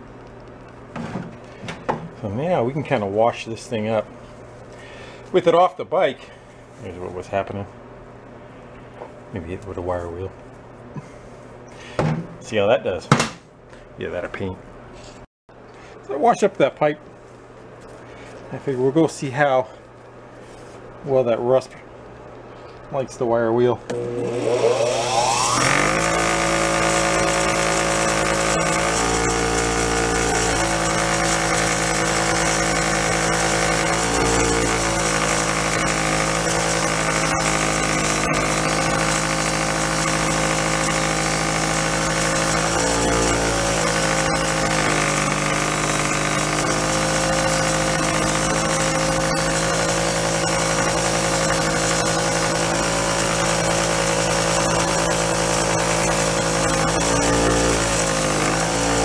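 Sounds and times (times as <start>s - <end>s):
bench grinder motor hum: 23.9s - 59.0s.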